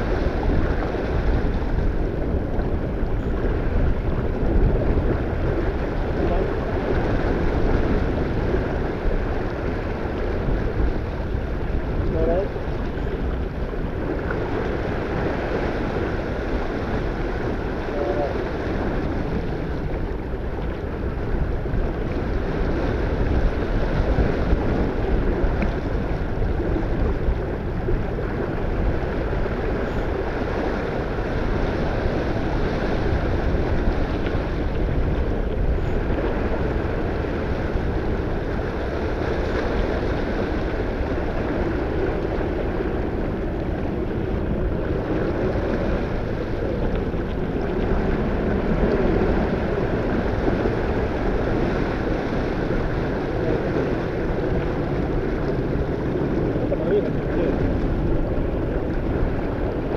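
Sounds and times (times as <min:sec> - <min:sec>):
water rushing along hull: 0:00.0 - 0:59.9
wind buffeting microphone: 0:00.0 - 0:59.9.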